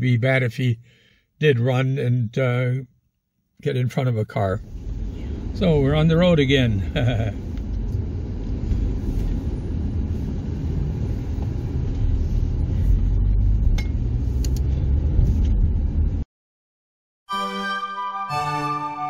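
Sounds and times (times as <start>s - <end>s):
car engine and tyre rumble: 4.6s - 16.2s.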